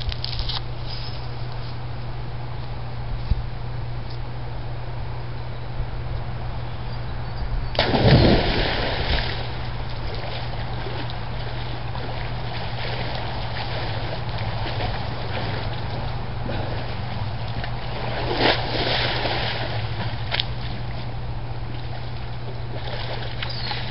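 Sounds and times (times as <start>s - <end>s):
person jumping into pool splash: 7.8s - 20.3s
water splashing and lapping: 7.8s - 23.9s.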